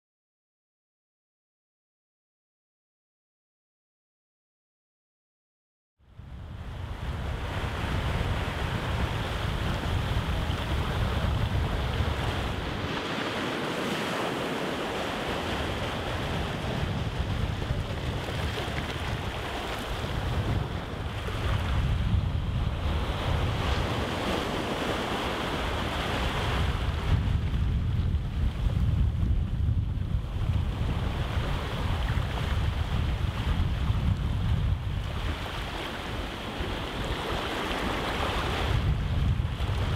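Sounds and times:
wind rumbling on microphone: 6.0s - 39.9s
waves breaking on rocky shore: 7.0s - 28.8s, 30.5s - 39.9s.

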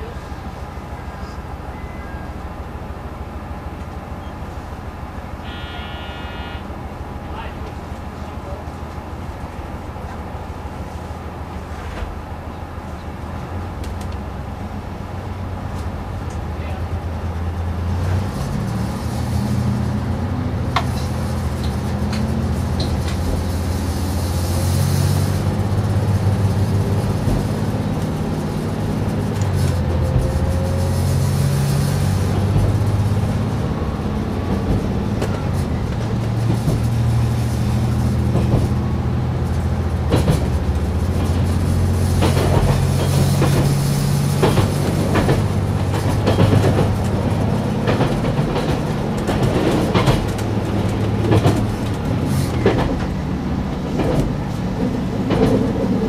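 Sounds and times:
diesel railcar engine drone: 0.0s - 56.0s
wheels clicking over rail joints: 20.7s - 56.0s.

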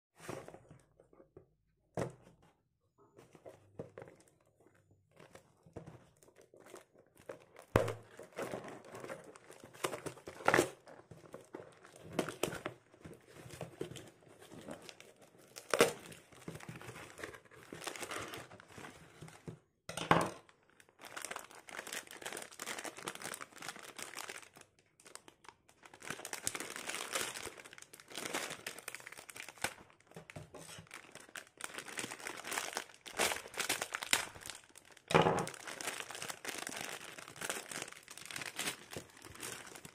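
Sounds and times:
plastic bag crinkling: 20.8s - 39.9s.

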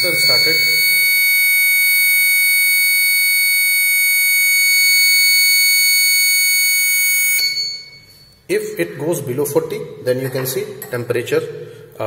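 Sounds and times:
high-pitched alarm tone: 0.0s - 8.4s.

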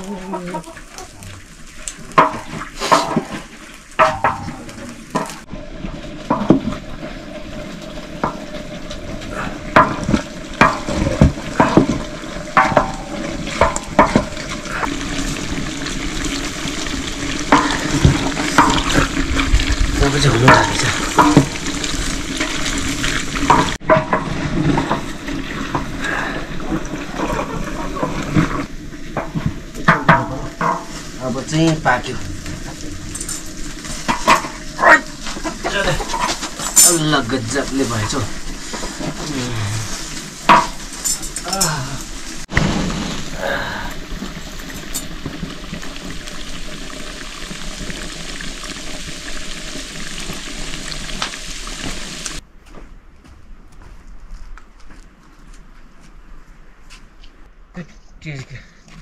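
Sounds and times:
meat sizzling in a pan: 0.0s - 52.4s
utensil scraping and knocking pan: 2.2s - 5.5s, 9.7s - 15.6s, 17.4s - 26.0s, 27.1s - 32.0s, 32.6s - 42.7s.

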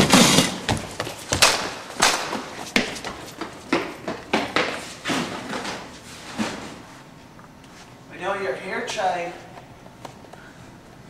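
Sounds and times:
footsteps on concrete floor: 0.0s - 8.0s.

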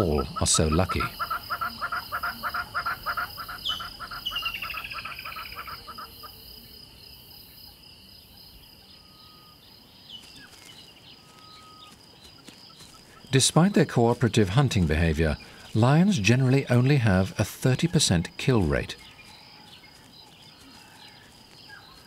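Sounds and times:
bird calling in repeated notes: 0.0s - 6.8s, 8.8s - 13.4s
insects trilling: 0.0s - 22.0s.

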